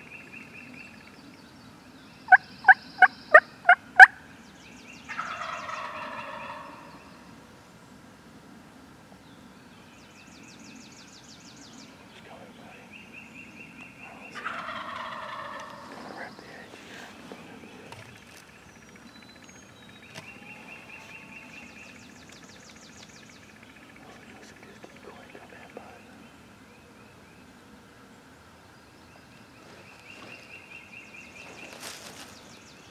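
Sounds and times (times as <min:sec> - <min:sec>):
turkey gobbling: 0:02.3 - 0:04.2, 0:05.1 - 0:06.9, 0:14.4 - 0:16.3.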